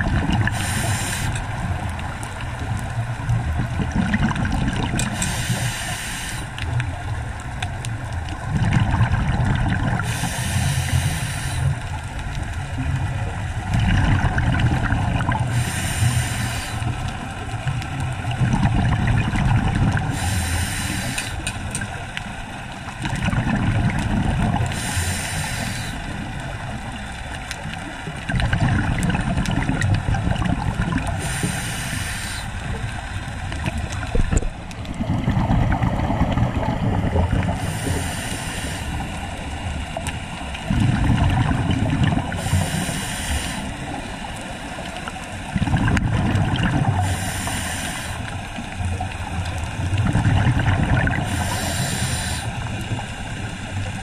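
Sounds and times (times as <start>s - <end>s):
exhaled bubbles rumbling: 0.0s - 5.9s, 6.5s - 54.0s
regulator inhale hiss: 0.4s - 1.5s, 5.0s - 6.6s, 10.0s - 12.0s, 15.5s - 17.0s, 20.1s - 21.6s, 24.7s - 26.2s, 31.1s - 32.8s, 37.5s - 39.5s, 42.3s - 44.8s, 46.9s - 48.4s, 51.2s - 53.8s.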